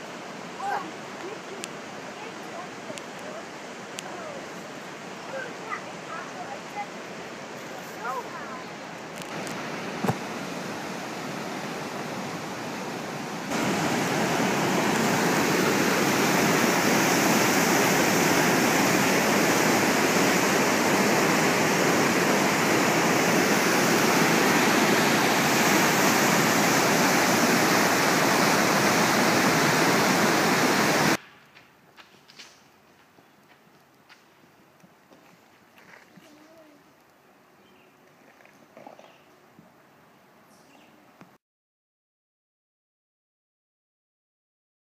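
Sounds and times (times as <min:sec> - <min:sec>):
waterfall and rapids roaring: 0:00.0 - 0:32.8.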